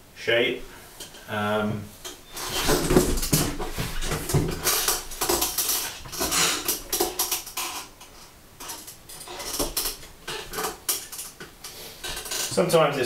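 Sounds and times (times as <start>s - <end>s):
clay bowls knocking and scraping: 2.0s - 12.5s.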